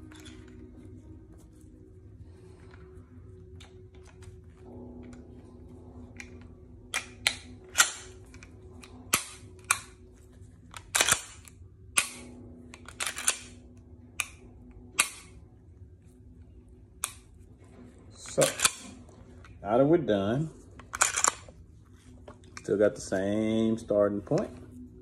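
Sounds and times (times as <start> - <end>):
pistol metal clicks: 6.2 - 10.1, 10.7 - 15.4, 17.0 - 17.3, 18.2 - 19.0, 20.9 - 21.5.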